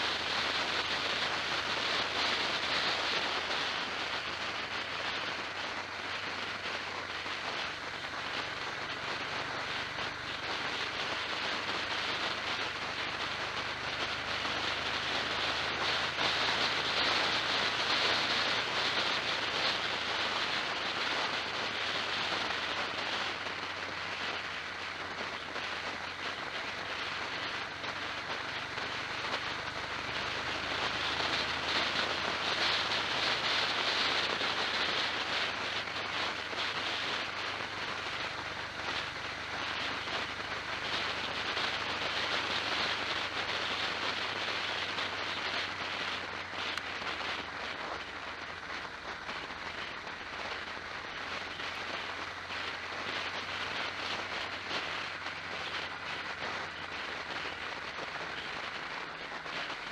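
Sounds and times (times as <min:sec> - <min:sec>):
vehicle wind and road noise: 0:00.0 - 0:59.9.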